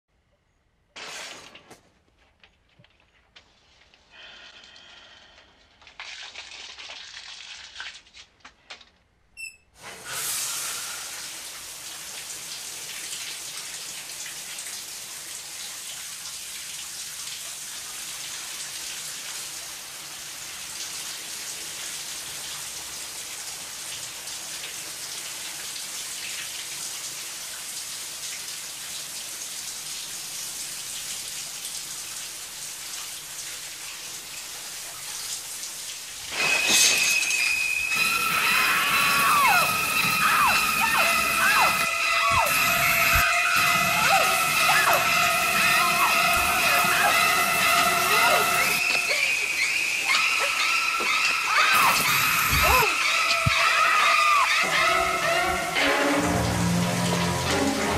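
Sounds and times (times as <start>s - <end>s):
shower curtain swinging: 1.0s - 4.1s, 36.2s - 39.6s
shower water spraying into tub: 4.4s - 8.4s, 9.8s - 57.9s.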